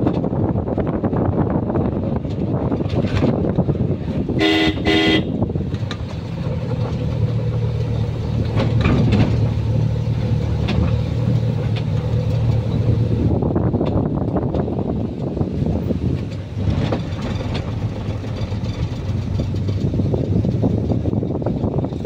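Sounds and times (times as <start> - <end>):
road noise: 0.0 - 22.0
vehicle engine droning: 0.0 - 22.0
vehicle horn tooting: 4.4 - 5.4.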